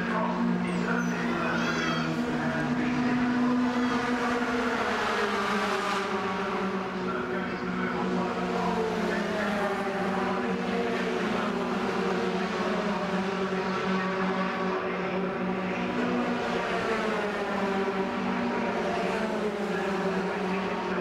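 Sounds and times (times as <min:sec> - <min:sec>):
racing truck engines passing: 0:00.0 - 0:21.0.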